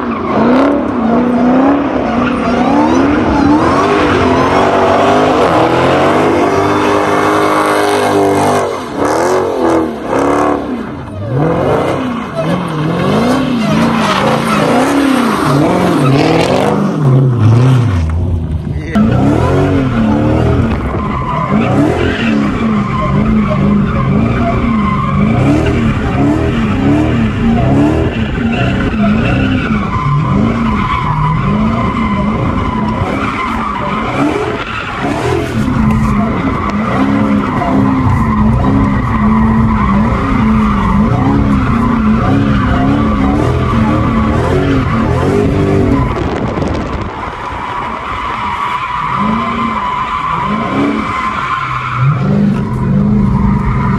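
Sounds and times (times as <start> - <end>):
car engine revving: 0.0 - 53.9
tyres squealing: 18.9 - 46.2.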